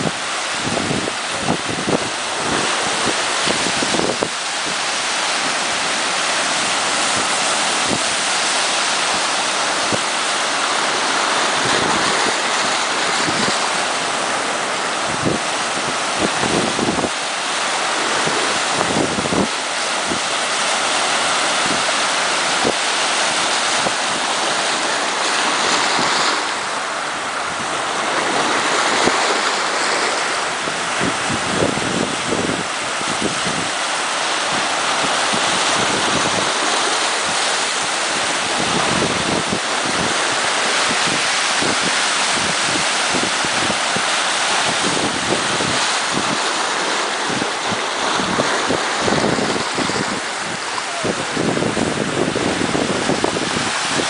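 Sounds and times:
waves breaking on rocks: 0.0 - 54.0.

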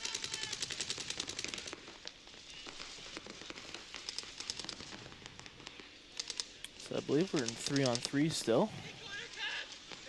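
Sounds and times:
paintball markers firing: 2.6 - 8.3.

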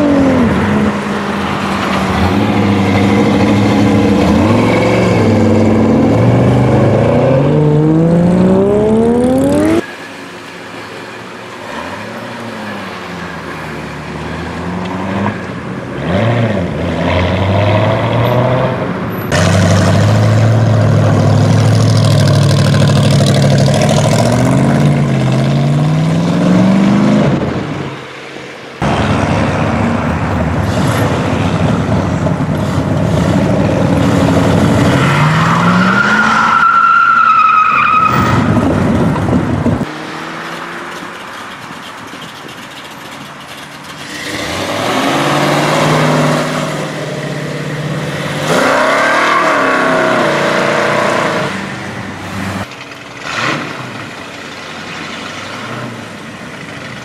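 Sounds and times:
car engines revving: 0.0 - 57.0
passing traffic: 0.0 - 57.0.

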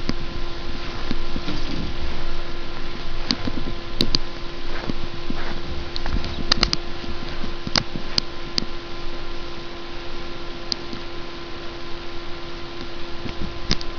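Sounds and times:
steady low hum: 0.0 - 13.9
sharp clicks: 5.9 - 6.8.

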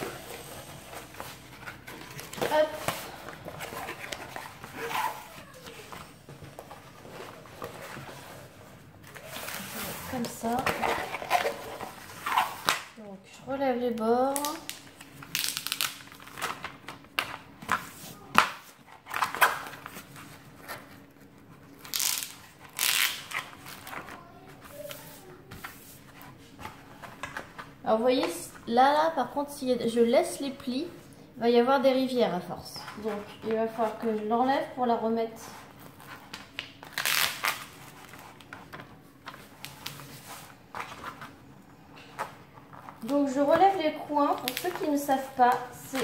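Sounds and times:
plastic film crinkling: 0.0 - 13.0, 13.9 - 27.7, 35.5 - 46.0
plastic sheet rustling: 0.0 - 13.0
sharp plastic crackles: 14.0 - 21.0, 21.7 - 25.0, 35.9 - 41.4, 44.3 - 46.0.

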